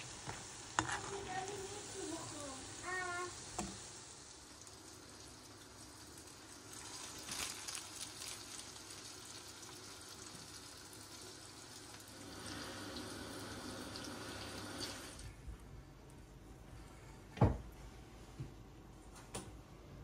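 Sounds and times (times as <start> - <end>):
hot oil sizzling in a frying pan: 0.0 - 15.2.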